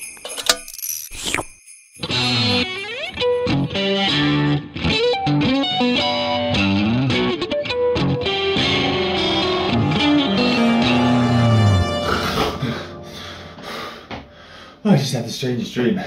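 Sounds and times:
electric guitar fast riff: 0:08.1 - 0:13.1.

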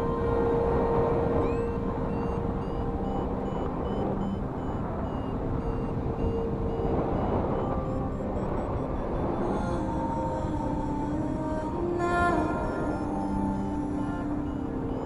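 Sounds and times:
wind rushing over microphone: 0:00.0 - 0:11.4
high electronic beeps: 0:01.3 - 0:10.2.

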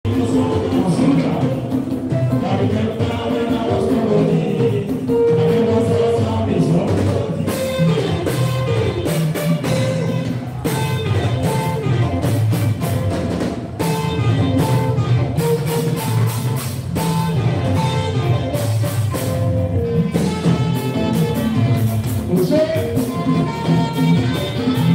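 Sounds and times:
man singing into a microphone: 0:00.0 - 0:08.3, 0:22.0 - 0:24.9
band with steady drum beat: 0:00.0 - 0:24.9.

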